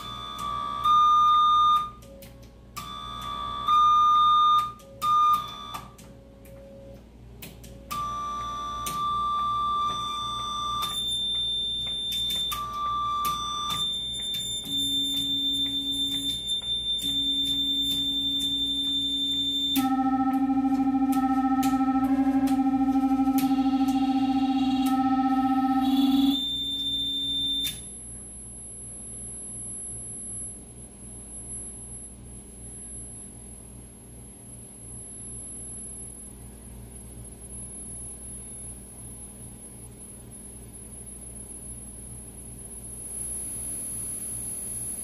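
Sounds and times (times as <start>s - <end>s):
clicks between tones: 4.5s - 25.0s
low wobbling buzzing tone: 7.8s - 33.6s
steady electronic tones: 7.9s - 27.7s.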